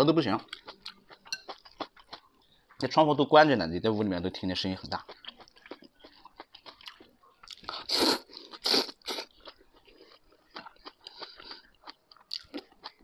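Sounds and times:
chewing with wet mouth clicks: 4.9s - 13.0s
person slurping noodles: 7.7s - 9.3s.

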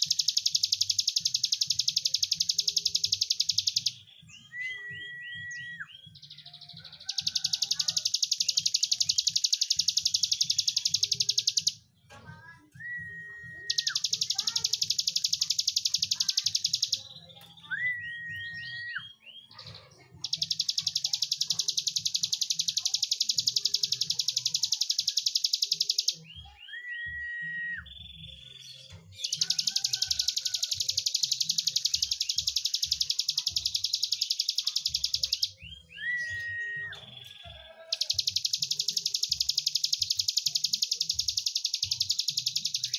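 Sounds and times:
bird singing buzzing trills: 0.0s - 4.1s, 7.1s - 11.8s, 13.6s - 17.1s, 20.2s - 26.4s, 29.1s - 42.9s
bird whistle and rising notes: 0.0s - 6.2s, 12.8s - 16.0s, 17.6s - 19.5s, 25.3s - 28.2s, 29.2s - 37.4s.

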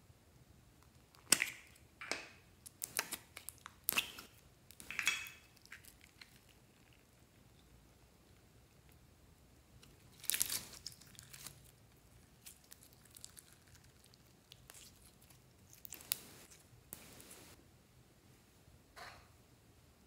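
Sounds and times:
slime crackling and popping: 0.8s - 7.2s, 9.8s - 17.6s.

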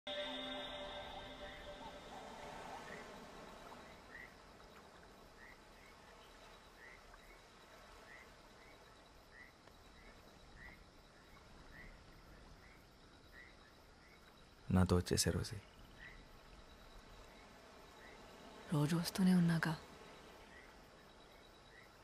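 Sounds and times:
thin high trill: 0.1s - 3.4s
night creatures chirping: 0.1s - 6.0s
low hiss: 0.1s - 22.0s.

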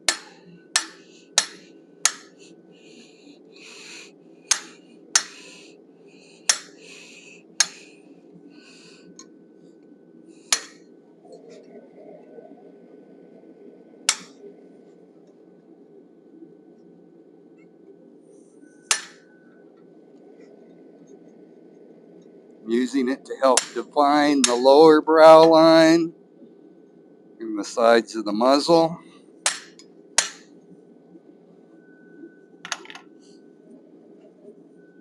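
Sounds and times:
hammer striking metal tool: 0.1s - 2.4s, 4.5s - 5.4s, 6.5s - 6.7s, 23.6s - 23.8s, 24.4s - 24.7s, 29.5s - 30.4s.

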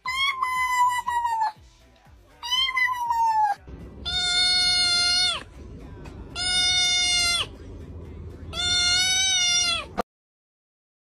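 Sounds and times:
kittens meowing: 2.4s - 5.5s, 6.3s - 7.5s, 8.5s - 10.0s.

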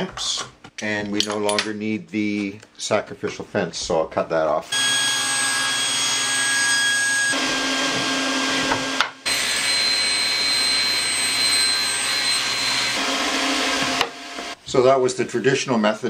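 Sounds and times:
table saw cutting wood: 4.7s - 14.6s.

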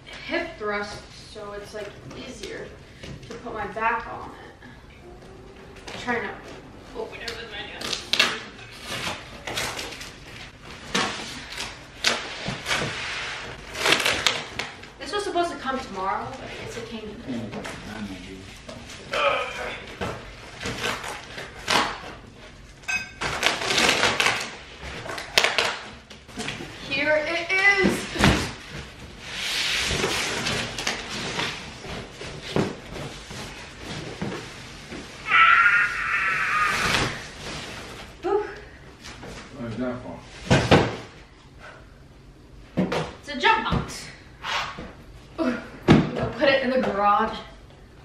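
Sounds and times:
packing tape ripping off cardboard: 10.8s - 14.9s, 20.5s - 22.2s, 23.2s - 26.6s, 29.3s - 33.6s, 36.6s - 37.8s.

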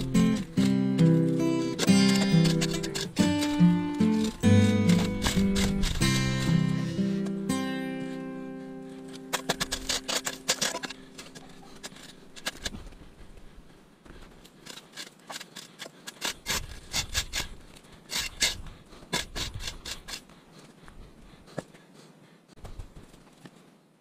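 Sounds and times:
spade chopping into soil: 0.0s - 7.4s, 9.1s - 12.8s.

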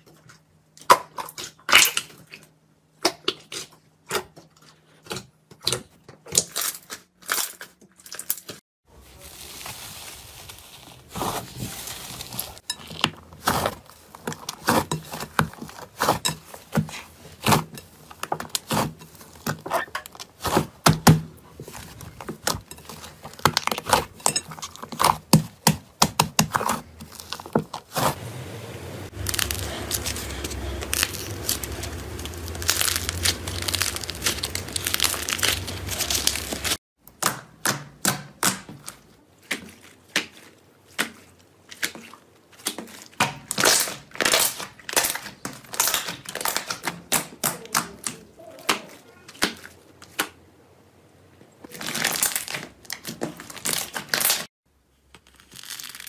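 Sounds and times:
slime popping and crackling: 29.1s - 36.8s, 55.2s - 56.0s.

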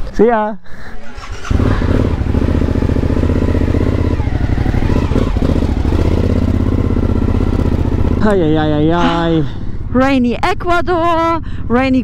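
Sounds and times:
motorcycle engine at low revs: 1.2s - 10.0s.

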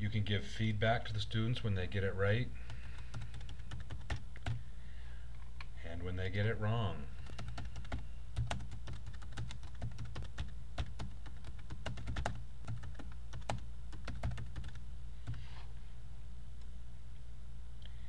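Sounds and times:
steady low hum: 0.0s - 18.0s
keyboard typing: 2.7s - 4.6s, 7.2s - 15.4s.

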